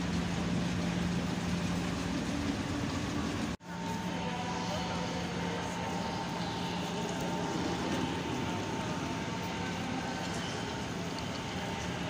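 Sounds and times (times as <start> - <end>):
hum from standing trains: 0.0 - 12.0
station hall din: 0.0 - 12.0.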